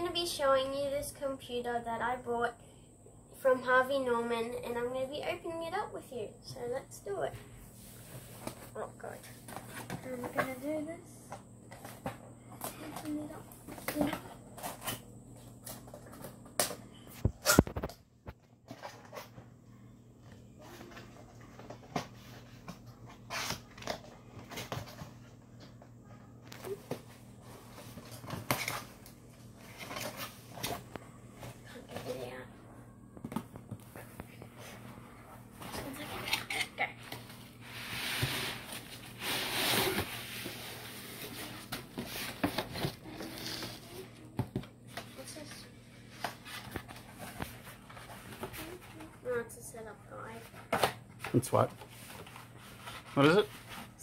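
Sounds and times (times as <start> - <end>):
cardboard rustling scrape: 37.2 - 44.0.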